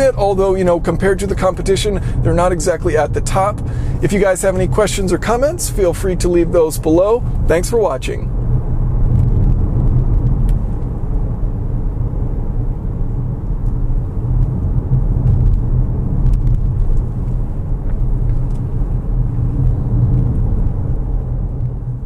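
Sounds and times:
tyres rumbling on road: 0.0 - 22.0
wind noise: 4.6 - 22.0.

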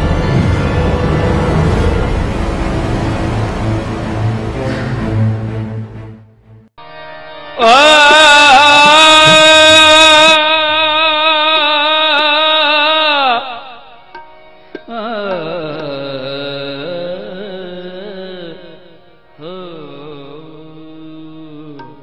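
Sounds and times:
man singing long held notes: 7.6 - 14.0, 14.8 - 22.0.

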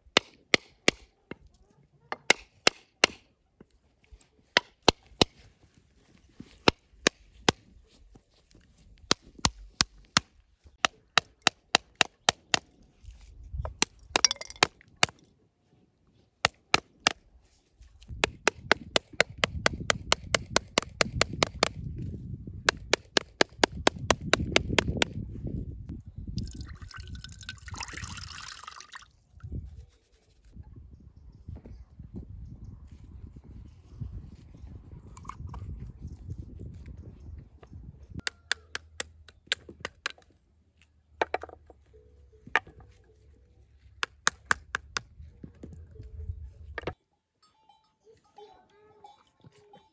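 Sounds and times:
metal pounder tapping coconut: 14.2 - 14.7
coconut water pouring into bowl: 26.4 - 29.1.

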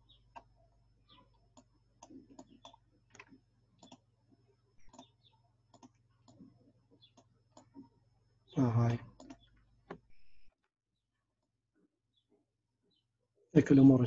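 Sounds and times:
computer mouse clicks: 0.1 - 0.5, 1.5 - 4.1, 4.8 - 7.8, 9.1 - 10.6.

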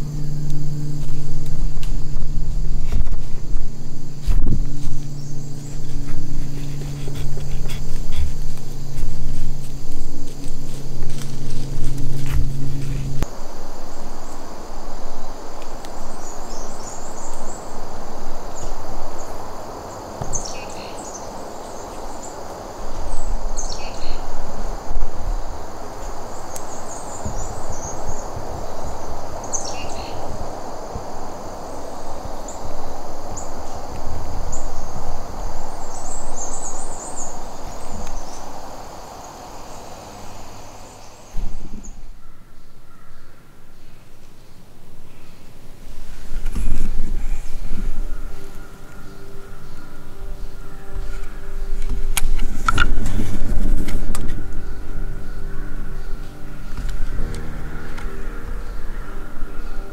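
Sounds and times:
steady rushing noise: 0.0 - 42.2, 45.6 - 59.9
small birds chirping: 0.0 - 45.5
high insect drone: 0.0 - 59.9.

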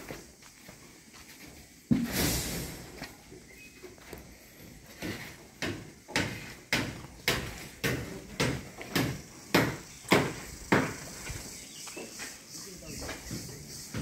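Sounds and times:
footsteps on concrete: 0.0 - 2.1, 3.0 - 6.1, 8.6 - 14.0.

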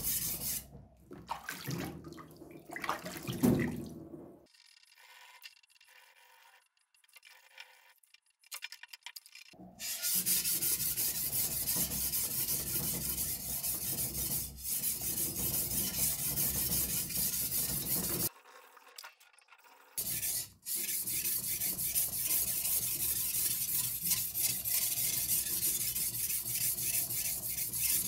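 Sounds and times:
blade rubbing on whetstone: 0.0 - 0.6, 9.8 - 18.3, 20.0 - 28.0.

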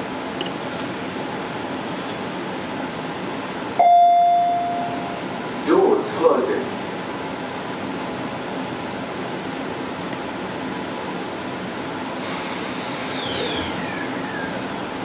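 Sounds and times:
high traction drive whine: 12.0 - 15.0.

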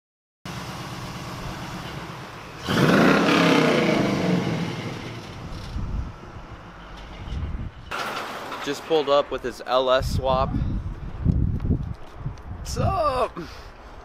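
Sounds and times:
pickup engine idling and revving: 0.5 - 7.3.

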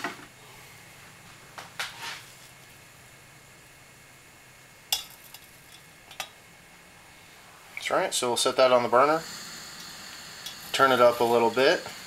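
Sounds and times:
camping stove hissing: 0.3 - 12.0
metal pot clinking: 4.9 - 6.4.

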